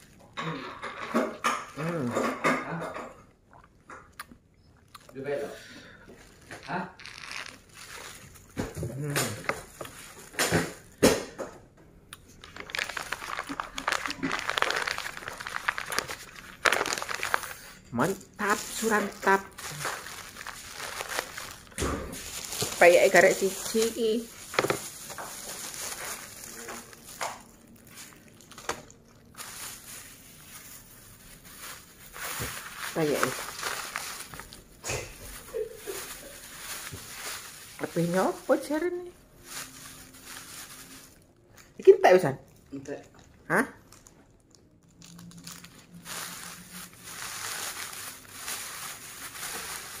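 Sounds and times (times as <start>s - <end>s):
plastic bag rustling: 6.0s - 11.3s, 12.3s - 41.4s, 44.9s - 50.0s.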